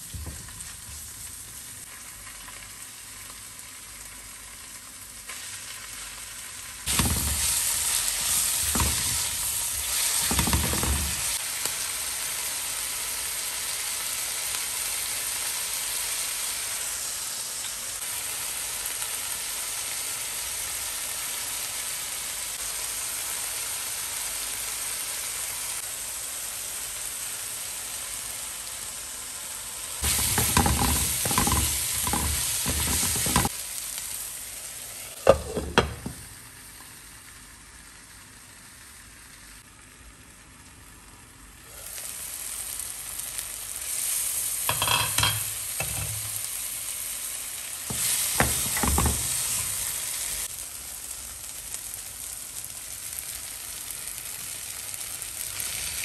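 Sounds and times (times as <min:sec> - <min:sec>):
food sizzling in a frying pan: 0:00.0 - 0:56.0
spatula scraping a pan: 0:30.0 - 0:33.5.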